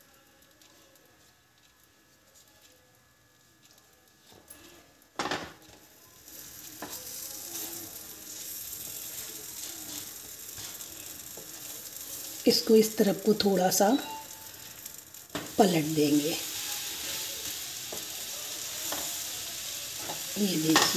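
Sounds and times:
butter sizzling in frying pan: 5.2 - 20.9.

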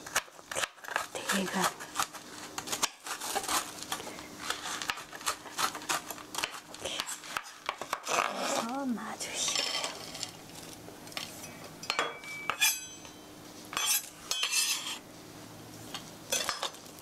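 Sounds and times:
utensils and dishes clinking: 11.4 - 13.2.

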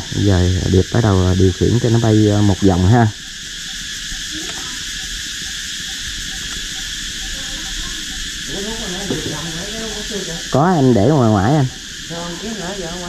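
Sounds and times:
insects chirring: 0.0 - 13.0
faint voices: 7.2 - 13.0.

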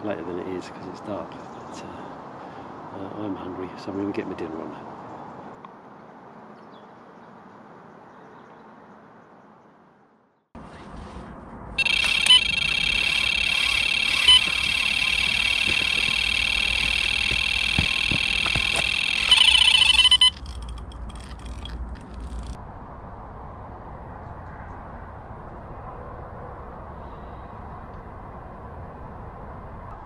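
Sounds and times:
bite alarm electronic tone: 11.8 - 20.7.

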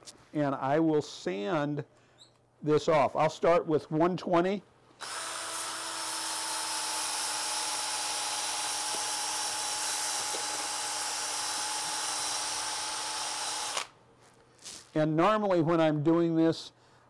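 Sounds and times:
cordless drill whine: 5.0 - 14.0.

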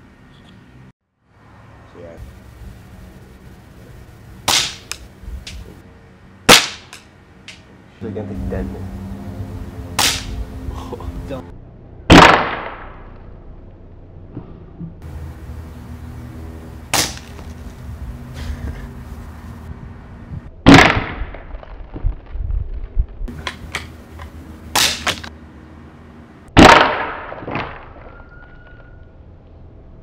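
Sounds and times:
air rifle firing: 4.5 - 5.6, 6.5 - 7.0, 10.0 - 10.4, 12.1 - 13.0, 16.9 - 17.4, 20.6 - 21.4, 24.7 - 25.3, 26.6 - 27.7.

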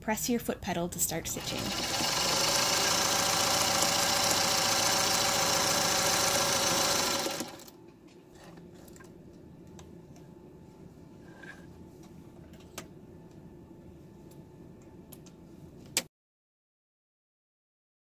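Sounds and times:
sewing machine stitching: 1.3 - 7.7.

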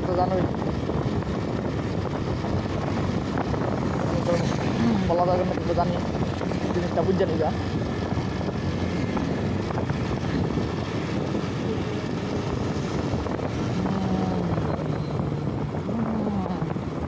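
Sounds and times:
road and wind noise: 0.0 - 17.0
faint wavering engine tone: 13.8 - 16.7.

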